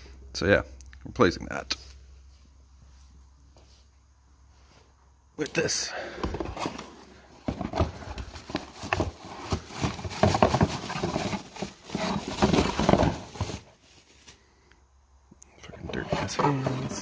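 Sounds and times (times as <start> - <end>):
cardboard box handled: 6.2 - 13.8, 15.9 - 17.0
bubble wrap crinkling: 7.7 - 14.4.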